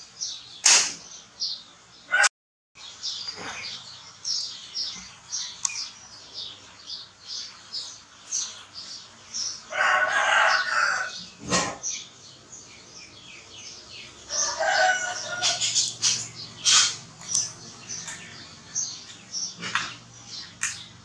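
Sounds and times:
rooster crowing: 0:02.1 - 0:02.3, 0:09.7 - 0:11.2, 0:14.2 - 0:15.9.

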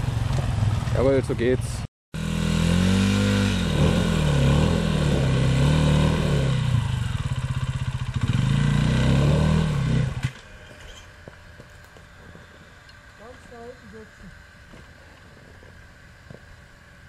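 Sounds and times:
dirt bike engine revving: 0:02.2 - 0:11.3.

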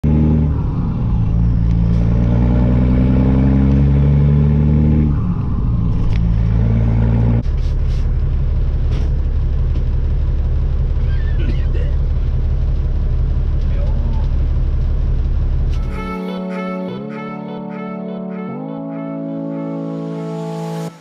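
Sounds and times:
diesel truck engine accelerating: 0:00.0 - 0:16.1
low engine rumble: 0:00.0 - 0:17.3.

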